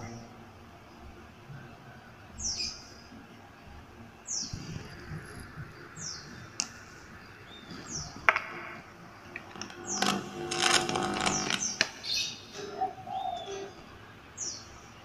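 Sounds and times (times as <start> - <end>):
bird chirping: 11.0 - 15.0.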